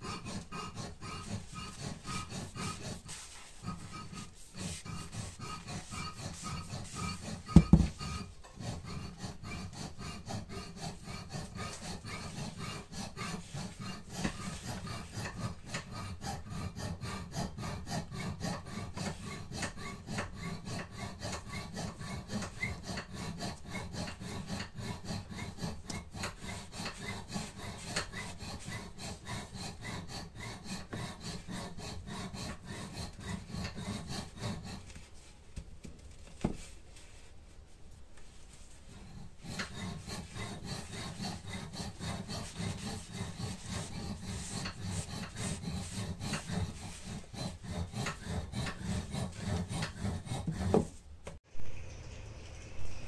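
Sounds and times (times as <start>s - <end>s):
hands rubbing wood: 0.1s - 51.4s
knocking on wood: 7.5s - 8.0s.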